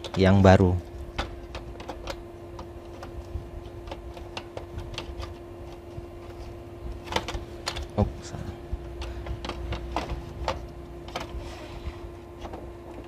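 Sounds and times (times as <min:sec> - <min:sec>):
plastic clicks and scrapes: 0:00.9 - 0:07.9.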